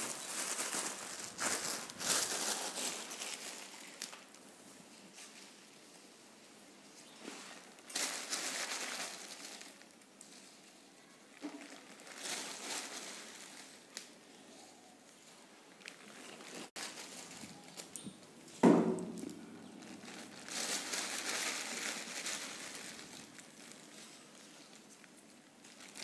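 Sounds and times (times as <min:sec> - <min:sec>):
plastic bag crinkling: 0:00.0 - 0:04.4, 0:07.3 - 0:10.6, 0:11.4 - 0:14.2, 0:15.8 - 0:26.0.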